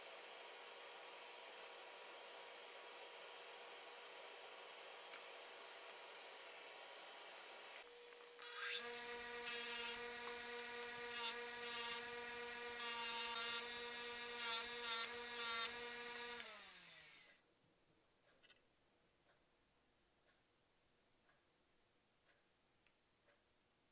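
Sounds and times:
bench grinder motor humming: 7.9 - 17.4.

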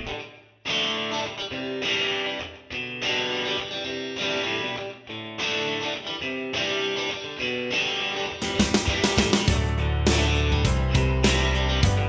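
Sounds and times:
guitar playing chords: 0.0 - 12.0.

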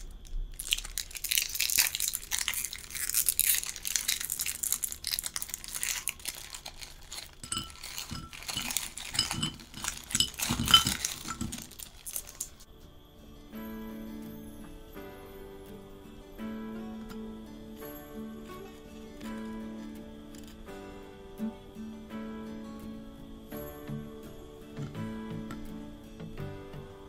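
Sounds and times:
plastic wrapper crinkling and tearing: 0.0 - 12.7
cookies clinking on ceramic plate: 0.6 - 12.6.

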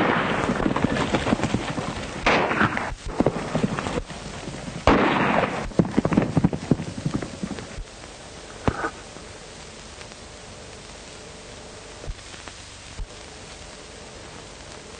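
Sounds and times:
gunshots: 0.0 - 4.1, 4.8 - 7.7
soundtrack hiss: 0.0 - 14.9.

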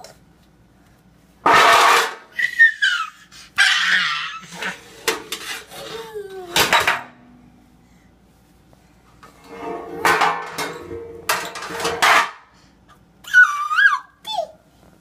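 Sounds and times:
metal pans scraping on tile floor: 1.4 - 2.3, 4.4 - 7.4, 9.2 - 12.5
metal baking pans crashing: 1.4 - 2.4, 4.4 - 7.4, 9.3 - 12.5
toddler squealing: 13.2 - 14.6.

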